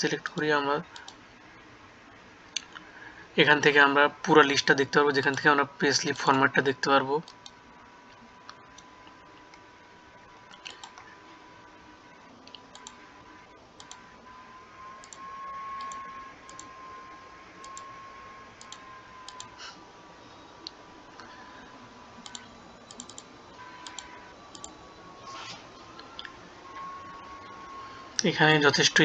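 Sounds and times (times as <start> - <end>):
faint steady whine: 0.0 - 29.0
computer mouse clicking: 10.5 - 11.1, 12.4 - 13.0, 15.0 - 15.2, 15.8 - 16.7, 17.6 - 17.9, 18.6 - 19.6, 22.2 - 24.8.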